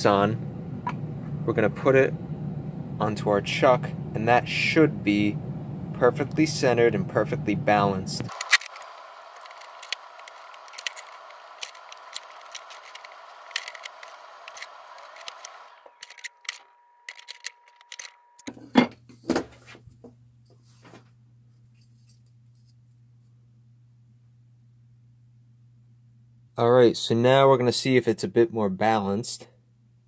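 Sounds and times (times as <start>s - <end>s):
metal and plastic parts clicking: 8.3s - 18.5s.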